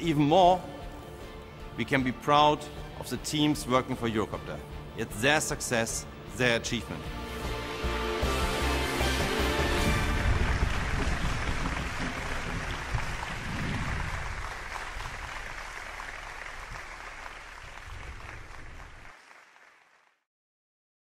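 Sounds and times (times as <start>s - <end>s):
closing music: 0.0s - 15.3s
applause: 8.9s - 20.3s.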